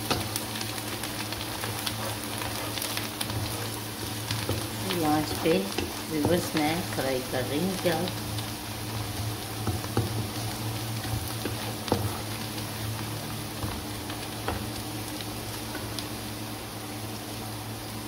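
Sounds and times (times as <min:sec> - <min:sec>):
onions sizzling in hot oil: 0:00.0 - 0:18.0
spatula scraping a wok: 0:01.4 - 0:06.0, 0:11.0 - 0:13.8.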